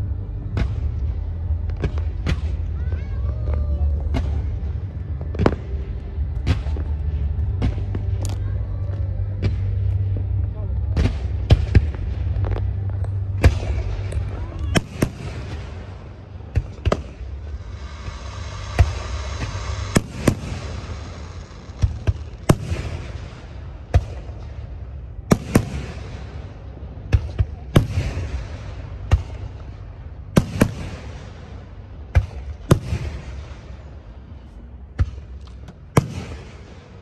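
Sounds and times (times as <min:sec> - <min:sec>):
firework bangs: 0:10.9 - 0:34.0, 0:35.9 - 0:37.0
hissing firework crackle: 0:13.5 - 0:23.7.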